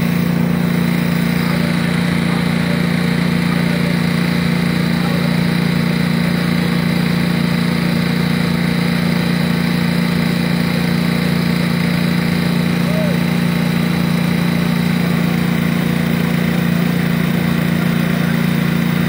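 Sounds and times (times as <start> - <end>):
small engine humming: 0.0 - 19.0.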